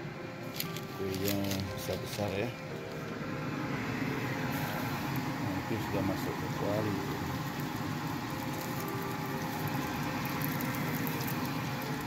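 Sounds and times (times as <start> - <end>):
hot oil sizzling and bubbling: 3.4 - 12.0.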